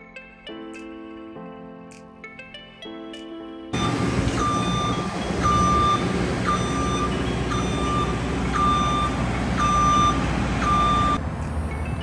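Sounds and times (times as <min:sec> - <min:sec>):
lift motion alarm beeping: 0:03.8 - 0:11.2.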